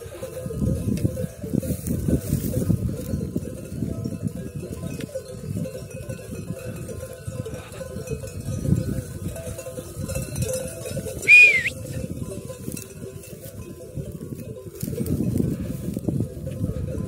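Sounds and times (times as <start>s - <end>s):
sheep bells clanking: 0.0s - 17.0s
sharp high whistle: 11.3s - 11.8s.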